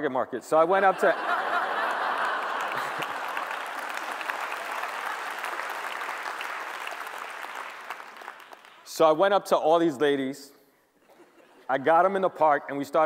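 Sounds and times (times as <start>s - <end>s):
large audience applauding: 1.2s - 8.9s.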